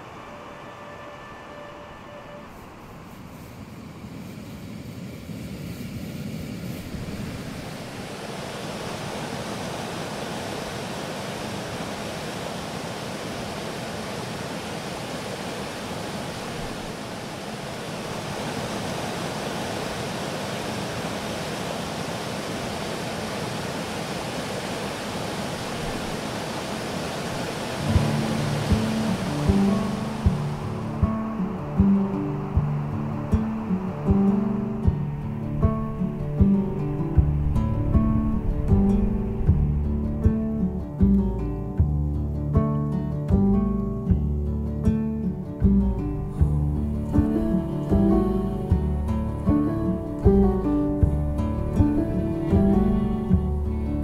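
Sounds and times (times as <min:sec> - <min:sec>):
outdoor ambience rushing noise: 0:00.0 - 0:54.0
low music notes: 0:27.8 - 0:54.0.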